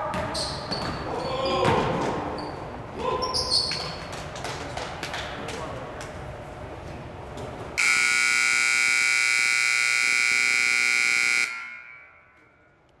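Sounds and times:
scoreboard buzzer blast: 7.8 - 12.4.

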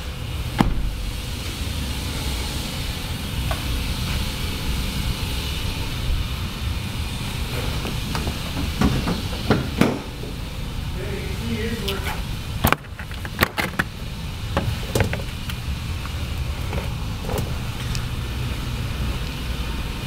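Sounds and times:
industrial rumble and hiss: 0.0 - 20.0
car hood clunks: 0.6 - 1.0, 7.8 - 10.4
car door shutting: 0.6 - 1.1, 7.6 - 10.4.

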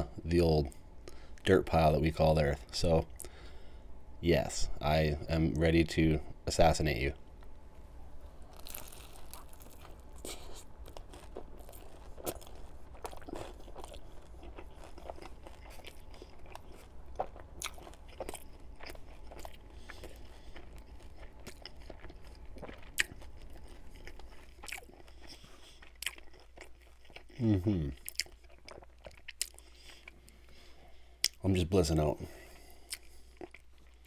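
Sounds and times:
chewing crispy food crunches: 8.4 - 30.4, 32.8 - 34.0.

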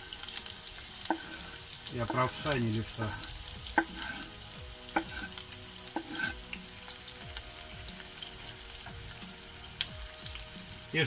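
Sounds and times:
onion sizzling in a frying pan: 0.0 - 11.0
knife scraping a cutting board: 1.0 - 1.6, 3.8 - 4.3, 5.0 - 5.4, 6.0 - 6.4.

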